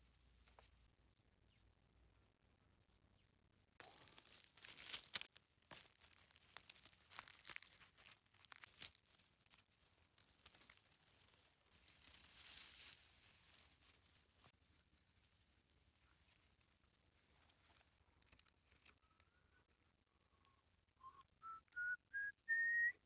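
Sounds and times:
stems snapping: 0:03.8 - 0:14.5, 0:17.3 - 0:19.3
dry leaves rustling: 0:03.8 - 0:19.0.

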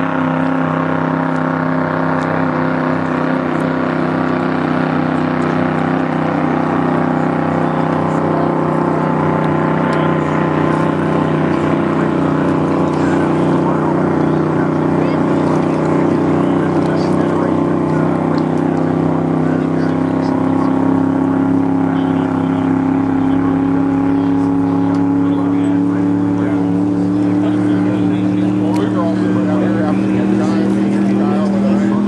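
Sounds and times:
racing boat engine running: 0:00.0 - 0:32.0.

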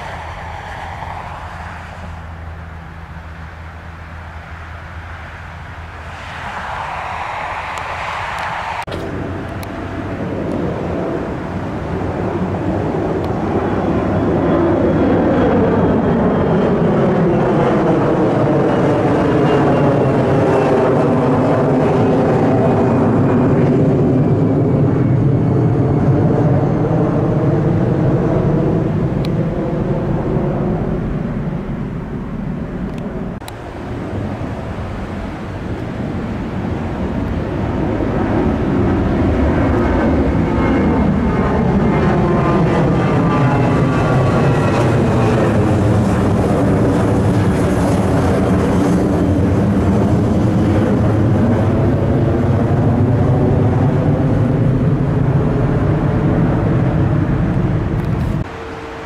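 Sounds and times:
jet airliner passing overhead: 0:00.0 - 0:59.0
jet engine whine: 0:00.0 - 0:59.0
brief rush of noise: 0:06.0 - 0:09.1.

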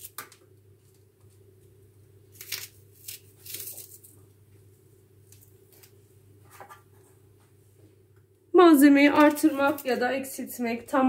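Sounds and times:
baking paper rustling: 0:02.3 - 0:04.4, 0:09.0 - 0:10.4.

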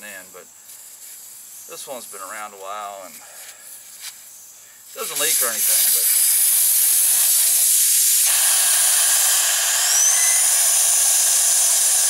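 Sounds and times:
air hissing out of tire valve: 0:00.6 - 0:01.7, 0:03.5 - 0:12.0
faint rising whistle: 0:09.8 - 0:10.6.

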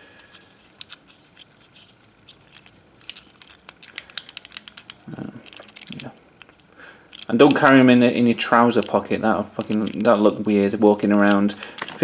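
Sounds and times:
small plastic clicks: 0:02.4 - 0:10.3.

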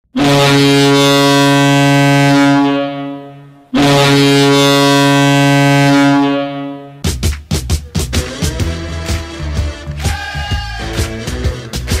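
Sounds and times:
goal horn deep blasts: 0:00.1 - 0:07.0.

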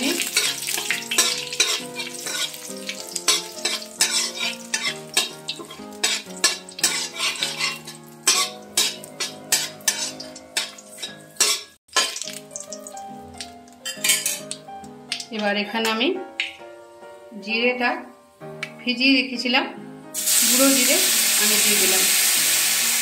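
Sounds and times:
spices sizzling in hot oil: 0:00.0 - 0:15.5, 0:20.2 - 0:23.0
spatula scraping metal wok: 0:00.2 - 0:12.2.

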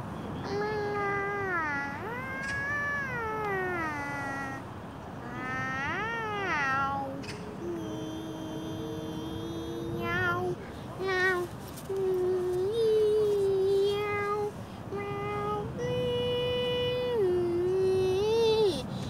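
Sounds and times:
cat meowing: 0:10.0 - 0:10.5.

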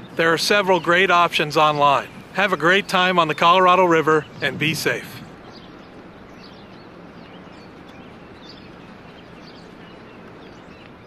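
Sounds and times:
small birds chirping: 0:00.0 - 0:11.0
steady background hiss: 0:00.0 - 0:11.0.

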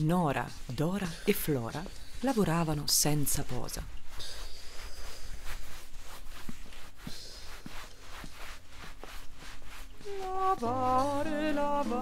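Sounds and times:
laundry scrubbing and knocking: 0:04.8 - 0:12.0.

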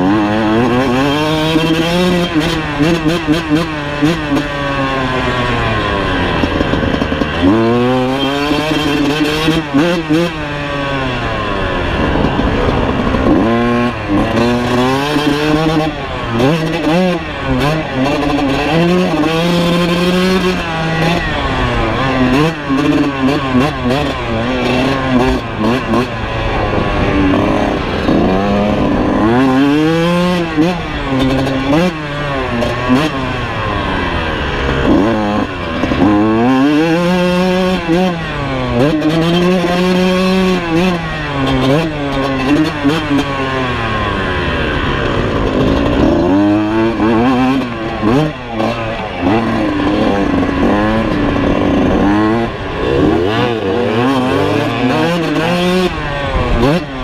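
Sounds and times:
two-stroke motorcycle engine revving: 0:00.0 - 0:57.0.

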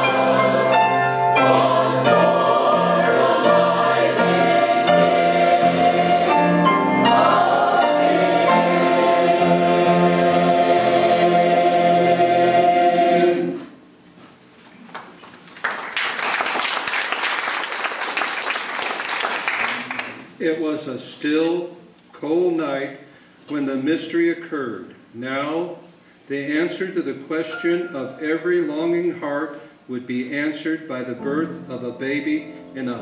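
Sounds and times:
choir singing: 0:00.0 - 0:13.8
audience applauding: 0:14.9 - 0:20.3.

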